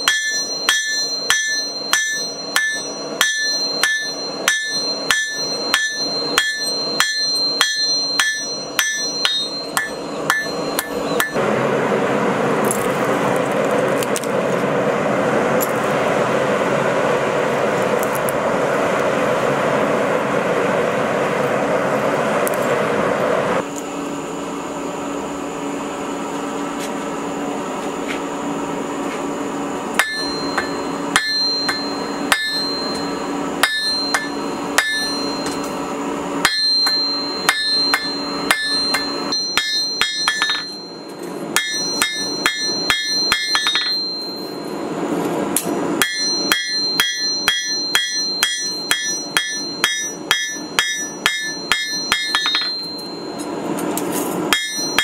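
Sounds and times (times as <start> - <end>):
hammer ringing on anvil: 0.0 - 11.4, 30.0 - 45.0, 45.6 - 53.6, 54.5 - 55.0.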